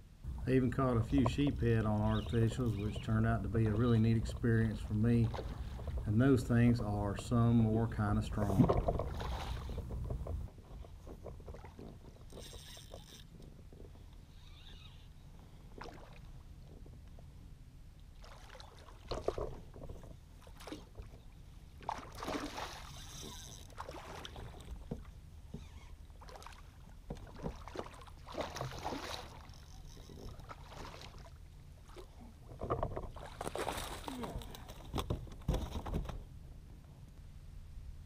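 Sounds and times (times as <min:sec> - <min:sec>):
steady low rumble: 0:00.0 - 0:10.6
fish splashing in water: 0:21.8 - 0:24.6, 0:26.2 - 0:29.6, 0:33.1 - 0:34.8.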